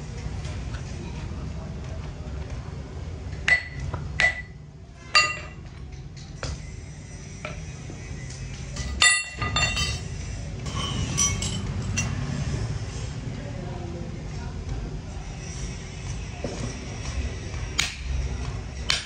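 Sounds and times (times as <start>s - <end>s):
ringing metal clinks: 5.2s - 5.6s, 8.8s - 10.1s, 10.7s - 12.2s.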